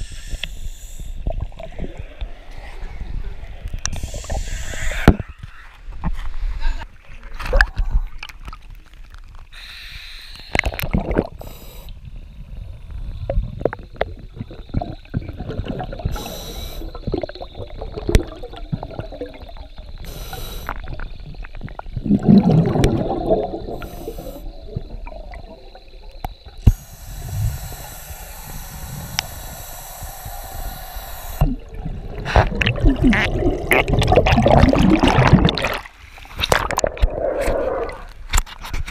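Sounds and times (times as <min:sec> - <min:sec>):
exhaled bubbles underwater: 0:10.6 - 0:38.3.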